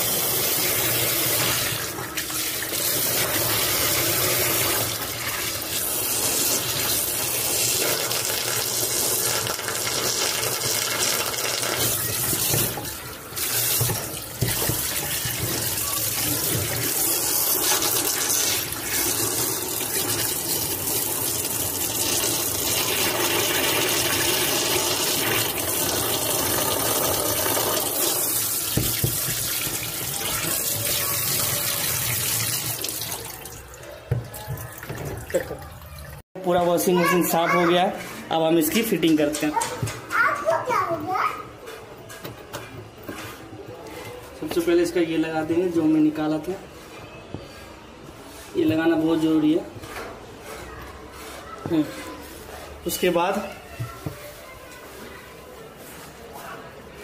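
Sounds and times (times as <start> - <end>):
hand scrubbing tub floor: 0.0 - 33.2, 46.4 - 57.0
water splashing into washing machine tub: 0.0 - 36.2.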